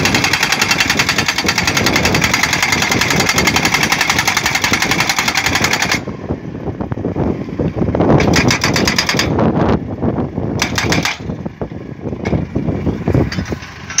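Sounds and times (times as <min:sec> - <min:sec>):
pile driver engine running: 0:00.0 - 0:14.0
hydraulic hammer striking metal post: 0:10.6 - 0:11.3.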